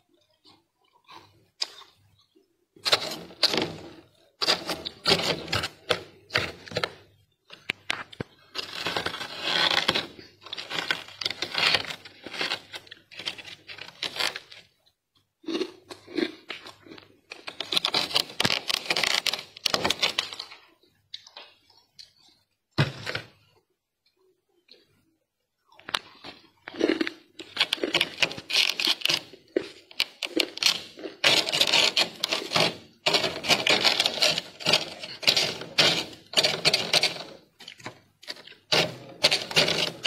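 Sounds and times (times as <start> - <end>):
freezer frost being scraped: 2.8 - 7.0, 8.3 - 14.7, 17.3 - 20.5, 26.8 - 40.0.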